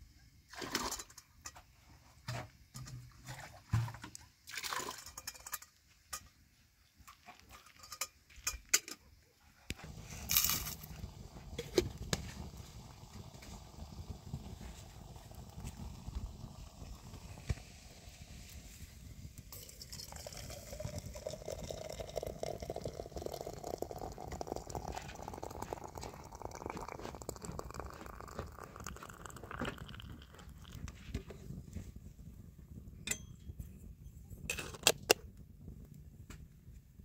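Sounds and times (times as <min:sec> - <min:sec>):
water pouring into a container: 0:04.4 - 0:05.4, 0:09.8 - 0:18.8, 0:19.5 - 0:31.0.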